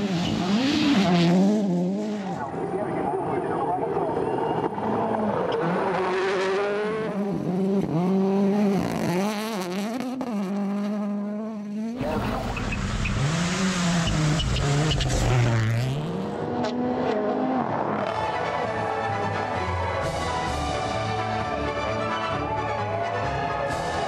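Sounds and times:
rally car engine revving: 0.0 - 22.0
deeper car engine passing: 4.5 - 18.3.

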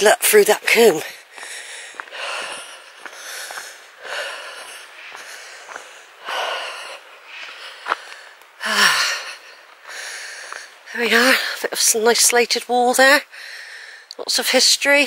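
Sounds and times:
footsteps on dirt path: 0.6 - 11.3
person breathing hard: 1.2 - 10.8, 13.3 - 14.1.

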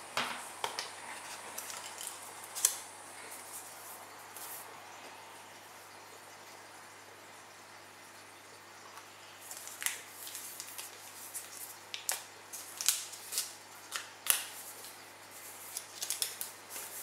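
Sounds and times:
packaging rustling: 0.8 - 2.8, 9.4 - 17.0.

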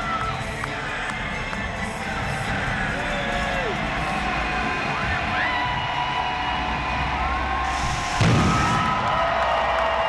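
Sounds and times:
music over loudspeakers: 0.0 - 8.9
crowd cheering and whooping: 2.7 - 10.0.

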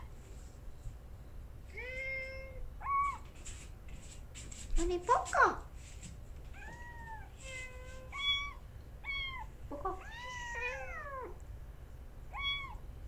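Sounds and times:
kittens mewing: 6.6 - 11.4, 12.3 - 12.8.

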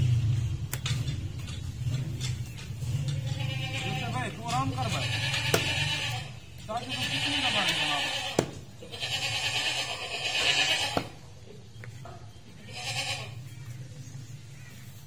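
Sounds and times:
goat bleating: 3.1 - 11.3, 12.5 - 13.5
cleaver chopping on wooden block: 5.5 - 5.8, 8.4 - 8.6.

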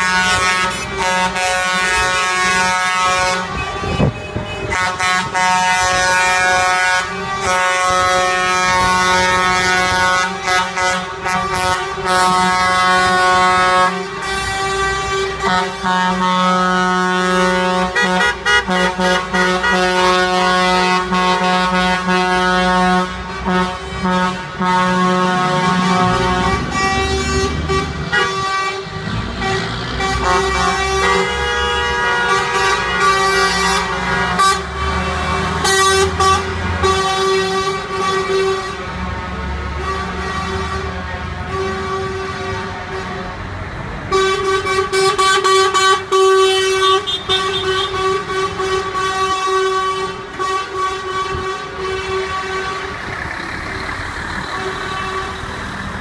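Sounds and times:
heavy truck engines running: 0.0 - 56.0
truck air horns blaring: 0.0 - 56.0.

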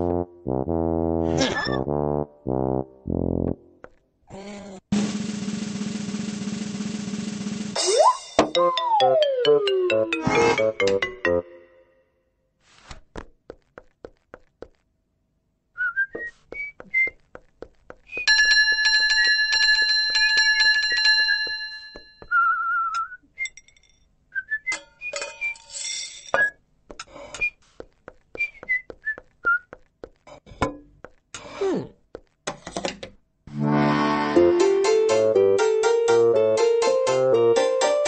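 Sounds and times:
whistled chirps: 15.8 - 17.2, 22.3 - 23.6
bell ringing: 18.3 - 22.2.

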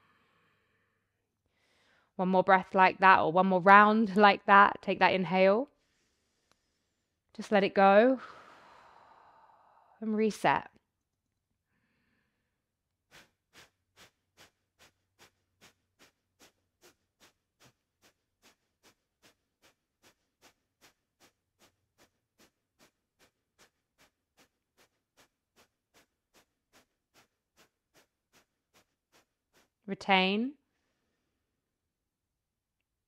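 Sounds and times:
fast sharp nasal exhales: 5.8 - 7.2, 8.2 - 10.0, 11.8 - 29.8.

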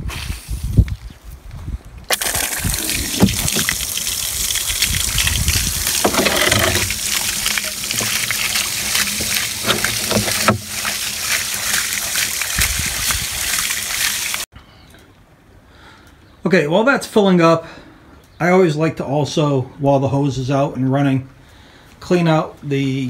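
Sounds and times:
hose gushing water into trough: 2.1 - 14.5.

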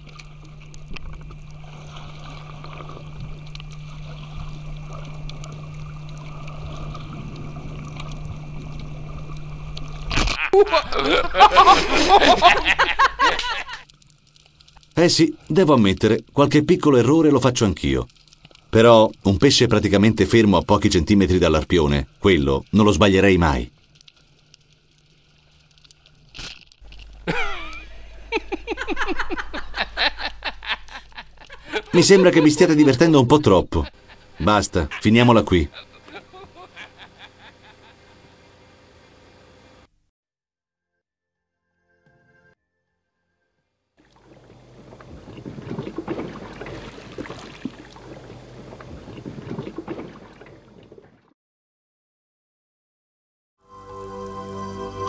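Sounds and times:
underwater rushing and sloshing: 0.0 - 10.1, 44.0 - 51.3
small underwater clicks and crackles: 0.0 - 10.3, 13.3 - 27.8, 30.2 - 32.0, 44.0 - 51.3
person laughing: 10.2 - 13.8, 27.2 - 38.2.

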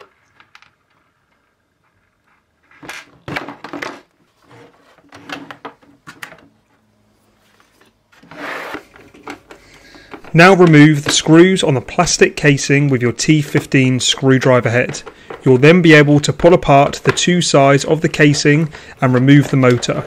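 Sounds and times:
hard plastic parts knocking and rattling: 2.7 - 6.6, 8.7 - 20.0.

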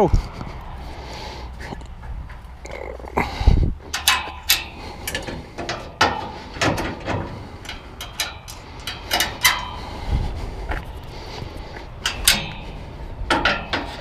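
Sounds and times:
metal tailgate clanking: 3.9 - 10.1, 12.0 - 14.0.

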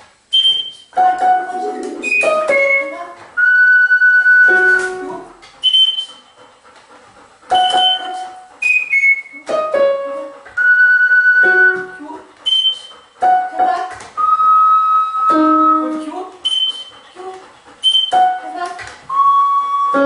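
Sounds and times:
high whistle-like tones: 0.3 - 0.9, 2.0 - 5.0, 5.6 - 6.4, 7.6 - 9.4, 10.6 - 13.2, 14.2 - 17.0, 17.8 - 18.3, 19.1 - 20.0
electronic keyboard notes: 1.0 - 5.2, 9.4 - 16.6, 18.0 - 20.0.

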